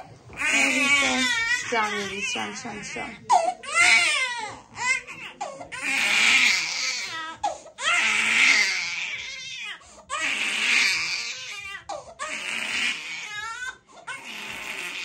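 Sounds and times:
baby crying in loud wails: 0.4s - 15.0s.

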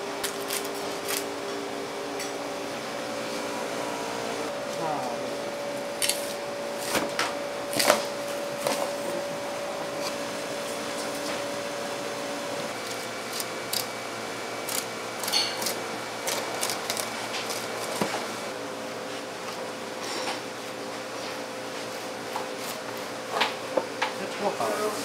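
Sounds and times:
mechanical hum: 0.0s - 25.0s.

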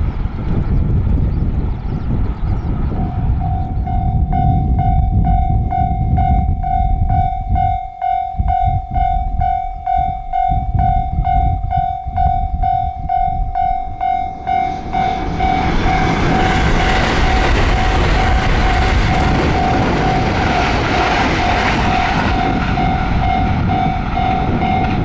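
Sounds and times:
electric train passing: 0.0s - 25.0s
level crossing bell ringing: 3.6s - 18.4s.

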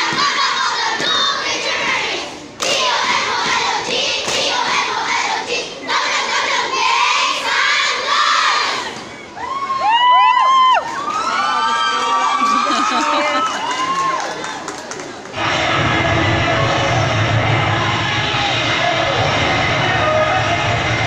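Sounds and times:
children shouting and cheering: 2.9s - 14.7s.

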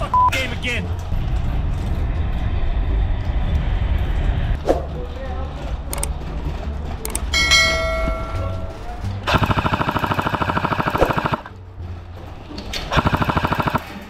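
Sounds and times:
airsoft rifle full auto burst: 9.3s - 11.5s, 12.9s - 14.0s.

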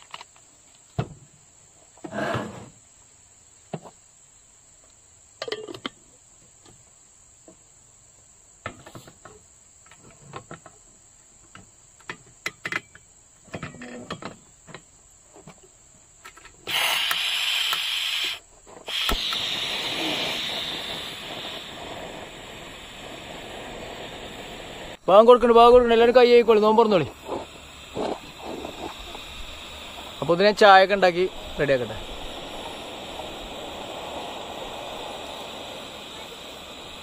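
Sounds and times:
insect chirring: 2.7s - 37.0s
gas stove hissing: 16.6s - 37.0s
burner igniter click: 18.9s - 19.8s.

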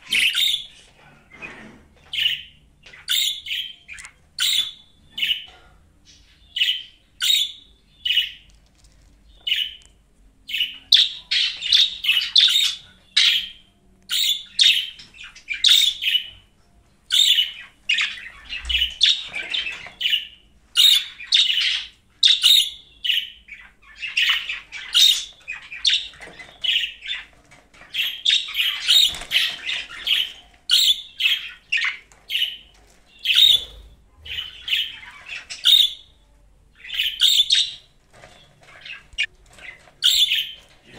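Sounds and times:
budgerigar chirping and warbling: 0.1s - 0.8s, 2.2s - 5.5s, 6.6s - 8.4s, 10.5s - 16.4s, 17.1s - 27.2s, 27.9s - 32.6s, 33.2s - 36.1s, 36.8s - 37.9s, 38.8s - 40.6s.

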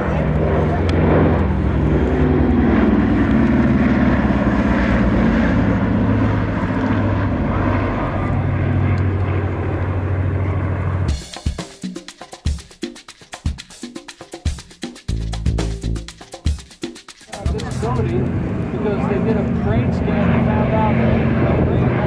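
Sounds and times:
propeller aircraft engines droning: 0.0s - 22.0s
music with percussive beat: 11.1s - 18.2s.

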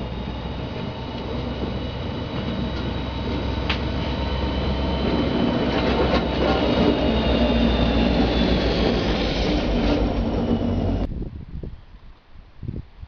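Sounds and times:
diesel locomotive engine: 0.0s - 12.5s
wheel and rail noise: 0.0s - 12.5s.

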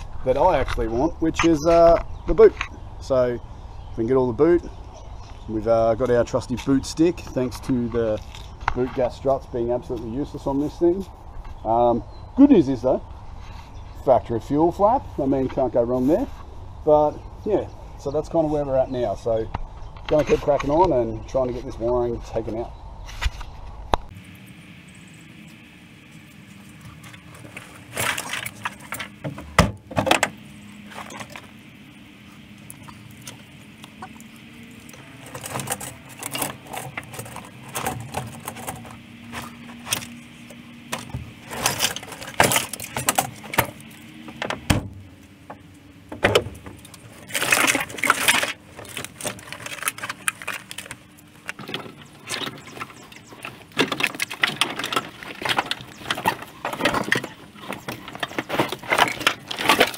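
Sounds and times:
faint steady hum: 0.0s - 59.9s
wiring and plastic clips clattering: 26.8s - 31.7s, 32.5s - 59.9s
carpet rustling and crackling: 32.7s - 59.9s.

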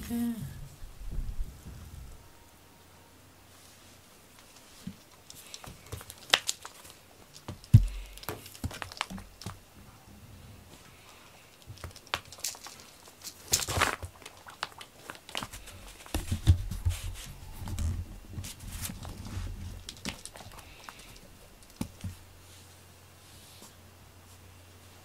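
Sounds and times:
crinkling rustles of cat toy: 3.6s - 9.6s, 10.8s - 22.8s.

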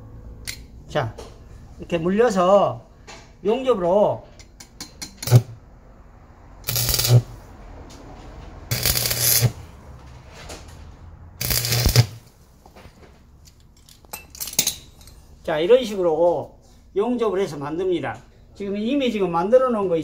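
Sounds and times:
welding arc crackle: 5.2s - 5.5s, 6.6s - 7.3s, 8.7s - 9.6s, 11.4s - 12.3s
welder low buzz: 6.6s - 7.4s, 8.7s - 9.6s, 11.4s - 12.3s.

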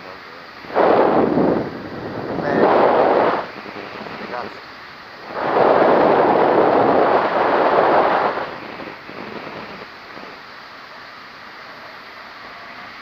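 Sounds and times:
wind rushing over microphone: 0.6s - 10.6s.

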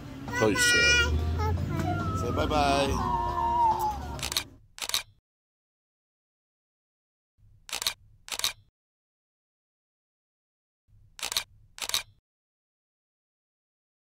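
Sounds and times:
sharp clicks: 4.2s - 5.2s, 7.7s - 8.7s, 11.2s - 12.2s.

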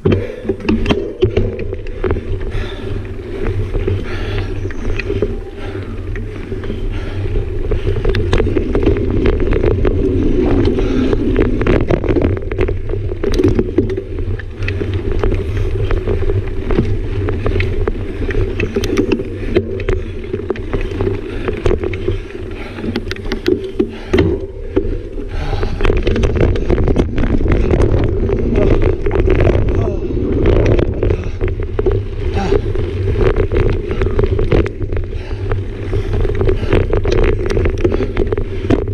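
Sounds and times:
bike rattling over bumps: 0.0s - 38.9s
knobby tyres rolling on dirt: 0.0s - 38.9s
wind buffeting microphone: 0.0s - 38.9s.

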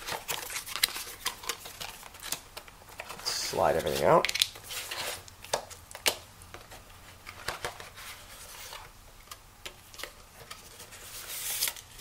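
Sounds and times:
paper rustling: 0.0s - 5.6s, 6.6s - 8.9s
cardboard packaging handled: 0.0s - 12.0s.

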